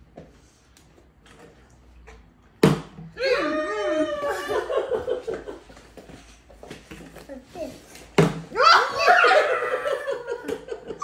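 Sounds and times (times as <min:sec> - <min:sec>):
people laughing: 0:03.8 - 0:05.7, 0:08.9 - 0:11.0
excited voices: 0:08.6 - 0:10.3.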